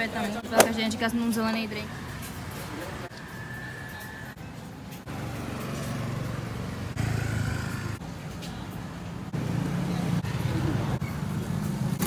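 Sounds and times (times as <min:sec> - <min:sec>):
motorbike engines running: 0:00.0 - 0:12.0
street traffic: 0:00.0 - 0:12.0.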